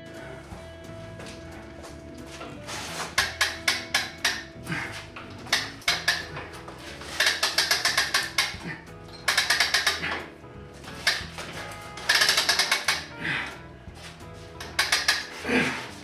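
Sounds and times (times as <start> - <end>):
background music: 0.0 - 16.0
winch ratcheting clicks: 3.1 - 10.3, 10.9 - 13.2, 14.6 - 15.4.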